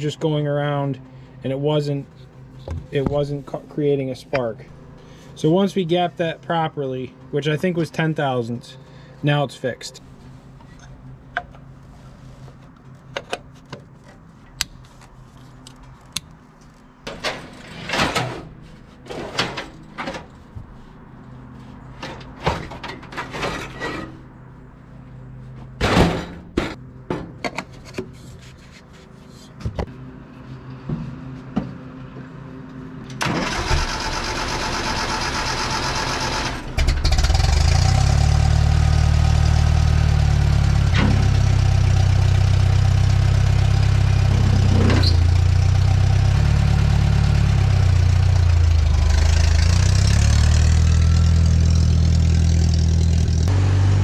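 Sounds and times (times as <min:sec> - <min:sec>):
metal clanks and knocks: 0:17.0 - 0:20.4, 0:22.0 - 0:24.2, 0:25.8 - 0:27.8
tractor engine cranking and running: 0:33.0 - 0:54.0.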